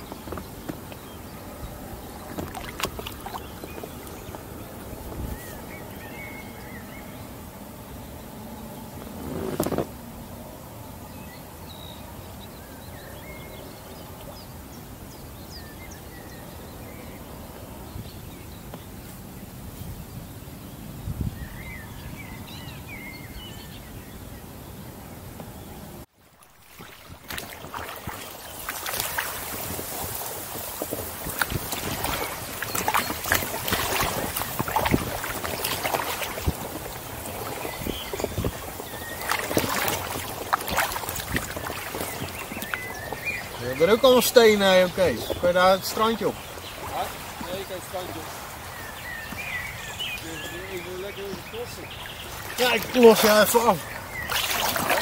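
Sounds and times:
water lapping against kayak hull: 0:00.0 - 0:10.1, 0:26.2 - 0:55.0
wind: 0:00.0 - 0:55.0.

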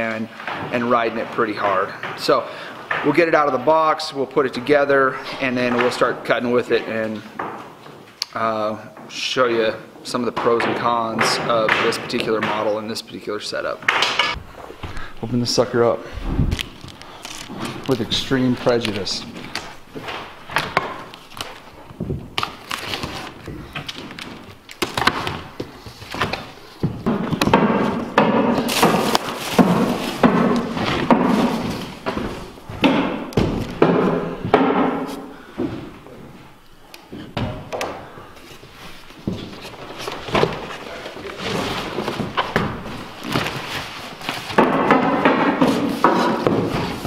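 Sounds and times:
cardboard rustling and scraping: 0:15.2 - 0:32.6, 0:38.4 - 0:47.0.

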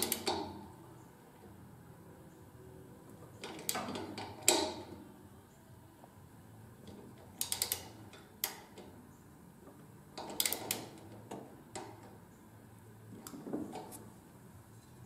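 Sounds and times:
hand ratchet clicking: 0:00.0 - 0:00.6, 0:06.9 - 0:08.9, 0:10.2 - 0:12.1.

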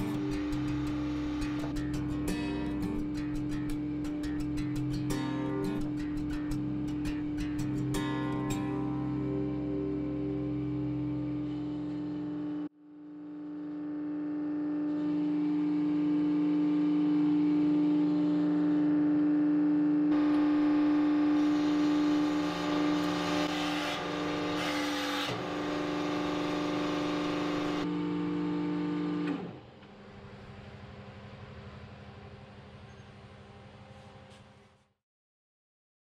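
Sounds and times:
hydraulic press motor hum: 0:20.2 - 0:30.0.

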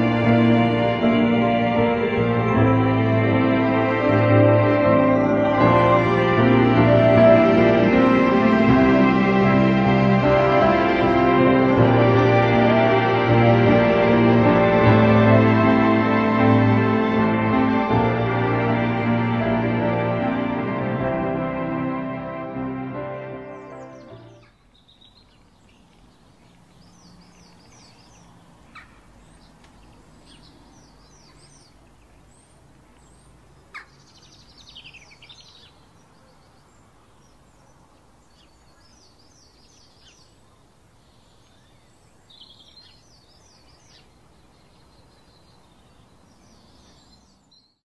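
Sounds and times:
birds chirping: 0:00.0 - 0:21.0, 0:22.8 - 0:47.8
outdoor background noise: 0:00.0 - 0:47.8
sharp bird call: 0:27.3 - 0:31.8.

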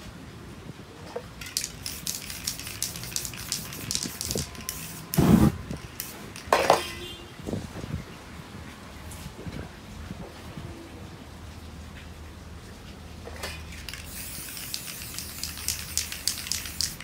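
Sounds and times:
spray can hissing bursts: 0:01.4 - 0:06.5, 0:13.8 - 0:17.0.

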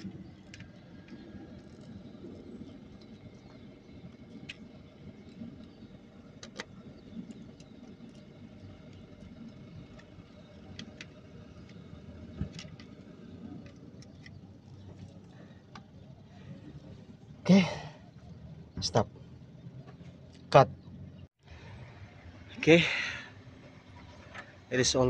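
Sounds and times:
steady low rumble: 0:00.0 - 0:25.0
small metallic clicks: 0:06.4 - 0:15.9.

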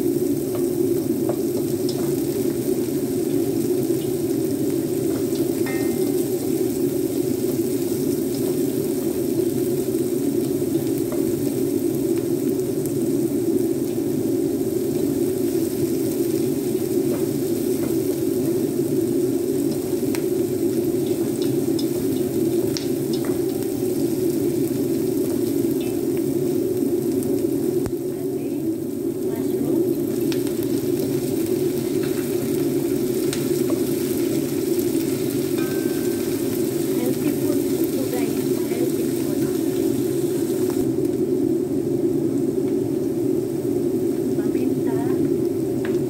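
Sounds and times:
vegetables sizzling in oil: 0:00.0 - 0:46.0
steady low rush: 0:04.5 - 0:07.7, 0:18.3 - 0:33.6.

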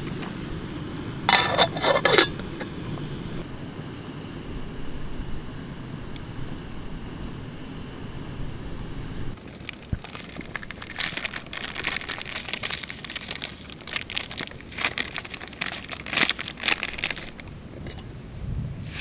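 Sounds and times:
plastic packet crinkling: 0:09.4 - 0:17.5.

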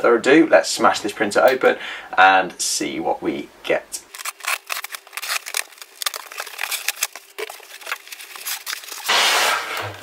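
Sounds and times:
packing tape crackling clicks: 0:04.1 - 0:09.1
foam block scraping out of box: 0:09.0 - 0:10.0.

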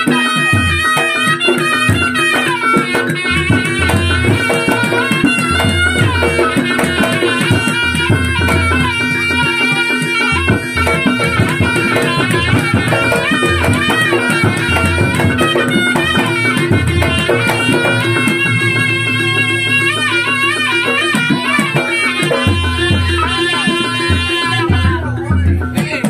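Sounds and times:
drums: 0:00.0 - 0:26.0
rattling percussion: 0:00.0 - 0:26.0
reedy shawm melody: 0:00.0 - 0:26.0.

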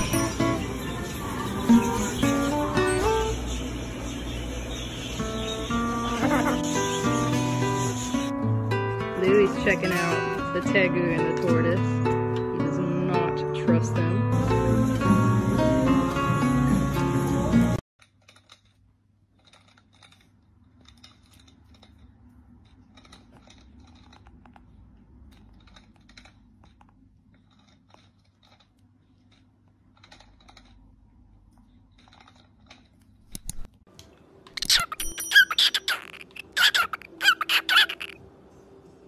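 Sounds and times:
small clicks and crunches: 0:18.0 - 0:34.7
cockatiel calling and whistling: 0:34.6 - 0:38.2.

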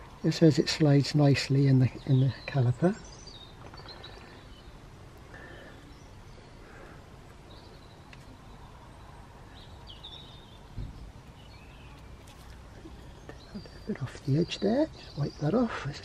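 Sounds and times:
low thump: 0:10.7 - 0:11.1.

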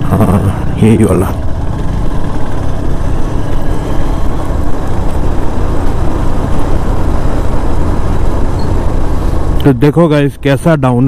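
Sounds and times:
motorcycle engine: 0:00.0 - 0:11.0
wind buffeting microphone: 0:01.4 - 0:09.6.

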